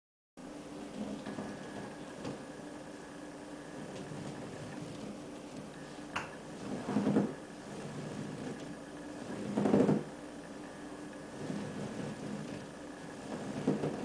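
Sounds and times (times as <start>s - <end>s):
low hum of room noise: 0.4s - 14.0s.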